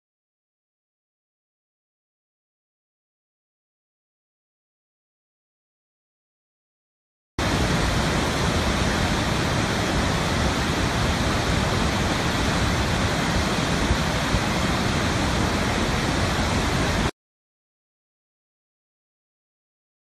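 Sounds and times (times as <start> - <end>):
waterfall rushing: 7.4 - 17.1.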